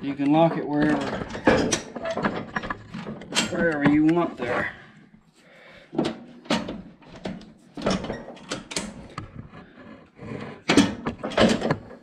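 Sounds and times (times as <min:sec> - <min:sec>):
metal lever clunking and rattling: 0:00.2 - 0:04.2, 0:06.0 - 0:09.1, 0:10.7 - 0:12.0.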